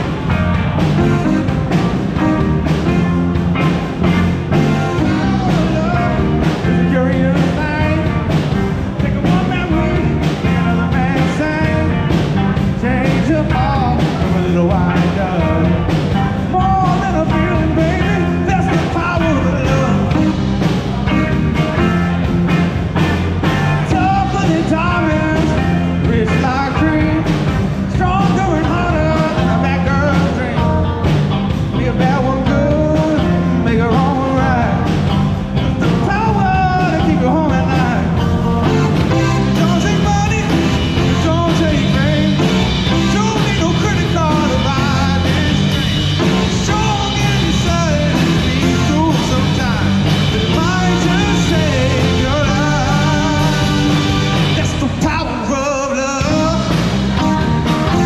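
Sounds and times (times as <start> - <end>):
live rock band playing: 0.0 - 58.0
man singing: 4.4 - 22.2, 23.4 - 58.0.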